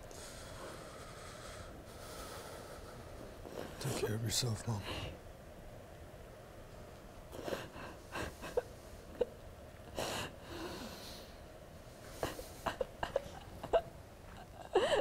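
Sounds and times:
woman sobbing: 0:07.4 - 0:09.4, 0:12.2 - 0:15.0.

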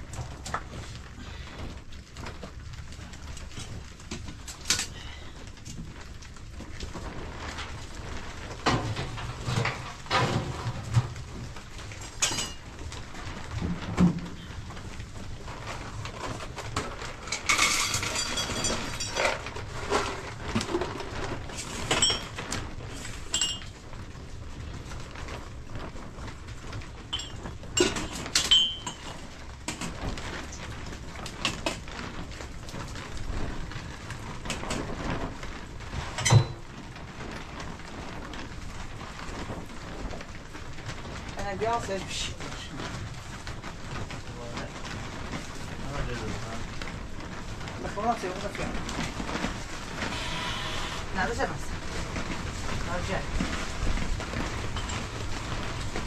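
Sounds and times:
clinks and knocks: 0:17.3 - 0:20.8, 0:21.8 - 0:22.5, 0:23.3 - 0:23.8, 0:27.1 - 0:29.2.

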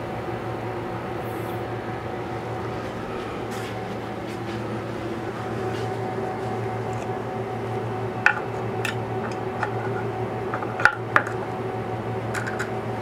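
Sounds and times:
electrical hum: 0:00.0 - 0:13.0
metal plate clicks and clinks: 0:12.4 - 0:12.7.

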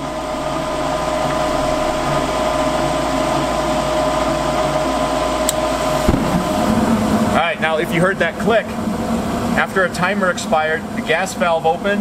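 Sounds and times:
furnace motor whine: 0:00.0 - 0:12.0
burner ignition thump: 0:05.4 - 0:07.4.

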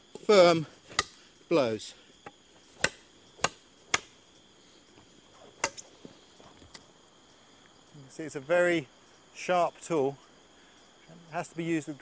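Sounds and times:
high insect drone: 0:00.0 - 0:12.0
blade chopping wooden stake: 0:00.9 - 0:01.2, 0:02.2 - 0:04.2, 0:05.6 - 0:05.9.

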